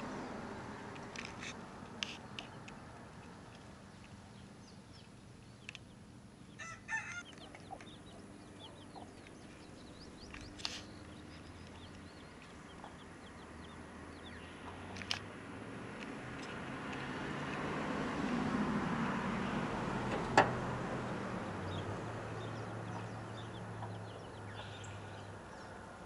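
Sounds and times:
baby chicks peeping: 2.1 - 15.1, 21.7 - 25.8.

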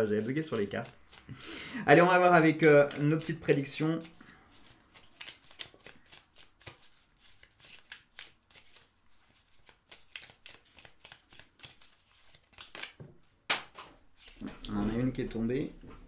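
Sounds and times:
cards being shuffled by hand: 0.0 - 1.4, 2.6 - 13.0, 14.2 - 15.1.

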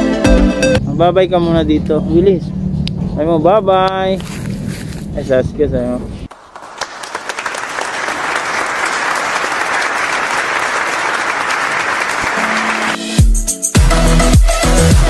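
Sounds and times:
electronic music: 0.0 - 0.9, 12.4 - 15.0
applause: 6.3 - 13.2.

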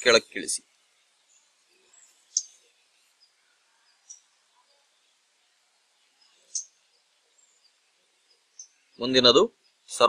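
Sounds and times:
faint steady hiss: 0.0 - 10.0
high-pitched bird chirps: 2.0 - 2.6, 6.3 - 6.8.

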